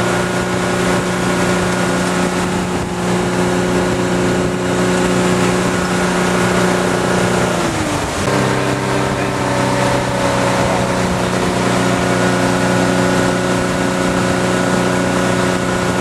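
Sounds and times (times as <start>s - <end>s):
rushing noise: 0.0s - 16.0s
towboat engine running: 0.0s - 16.0s.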